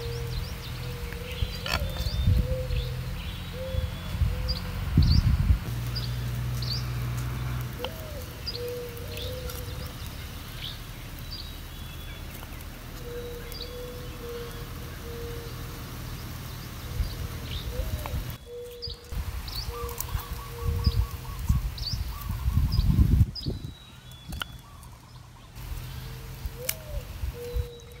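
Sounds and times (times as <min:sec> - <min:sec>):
birds chirping: 0:00.0 - 0:28.0
low repeated bird call: 0:00.0 - 0:28.0.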